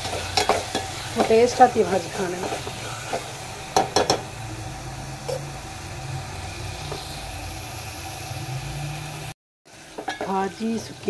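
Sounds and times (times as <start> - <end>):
metal spoon knocking on pot: 3.8 - 4.3.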